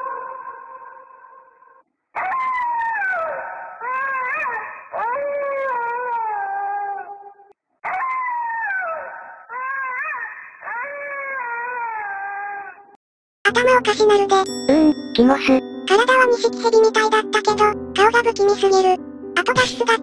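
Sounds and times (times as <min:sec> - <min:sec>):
dog-like howling: 0:00.0 - 0:01.6, 0:02.2 - 0:13.0.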